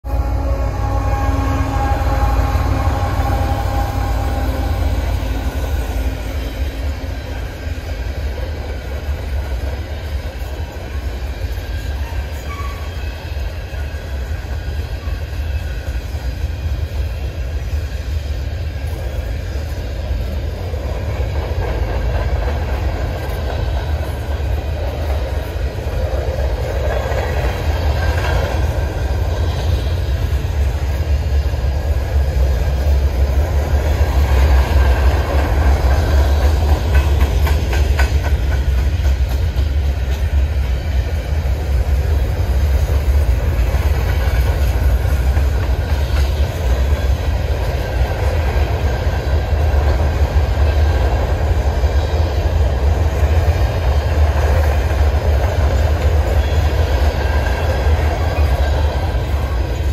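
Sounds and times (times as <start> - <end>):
diesel locomotive engine: 0.0 - 59.9
train wheels rumbling on rails: 0.0 - 59.9
wheel squeal: 11.8 - 14.0.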